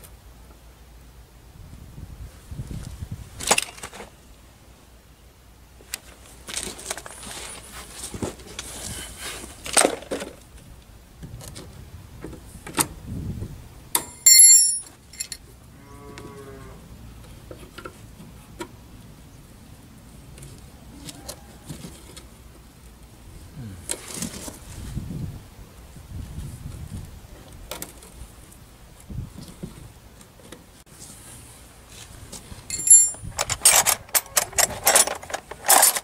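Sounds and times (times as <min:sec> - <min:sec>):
loud metallic ring: 0:14.0 - 0:14.9
cow mooing: 0:15.7 - 0:16.8
spanner clicking and scraping on bolt: 0:32.7 - 0:36.0.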